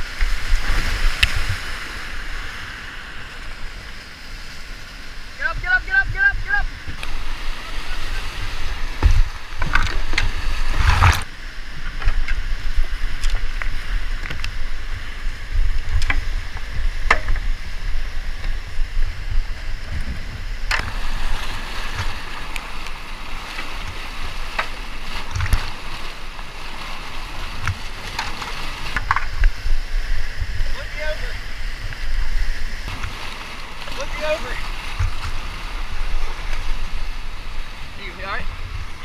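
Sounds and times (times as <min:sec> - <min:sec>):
whitewater rushing over rocks: 0:00.0 - 0:39.0
sharp knocks: 0:17.0 - 0:17.5.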